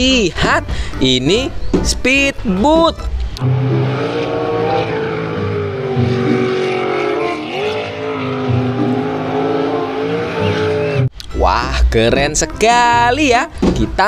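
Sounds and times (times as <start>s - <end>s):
boat engine at high revs: 2.5s - 11.1s.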